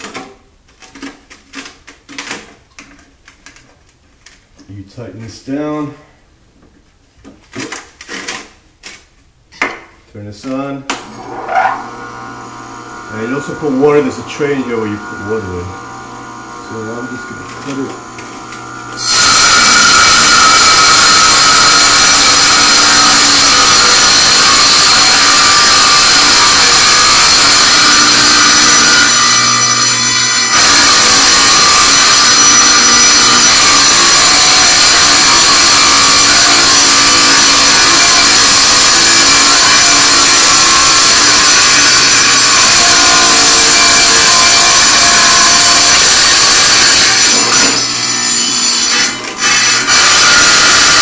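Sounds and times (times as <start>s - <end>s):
wet tile saw cutting marble: 11.1s - 51.0s.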